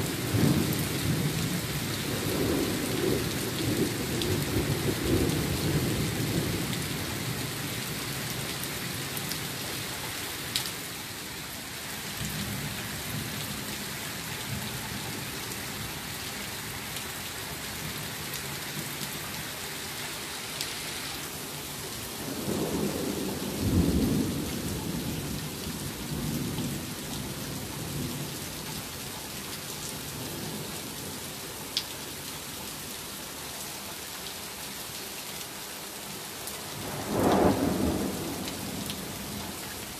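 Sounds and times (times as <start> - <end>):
steady rain falling: 0.0 - 39.9
thunder rumbling: 22.2 - 26.8, 36.8 - 39.5.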